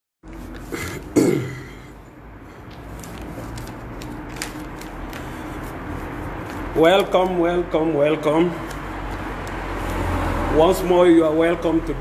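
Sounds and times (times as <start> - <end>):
man clearing his throat: 0.7 - 2.0.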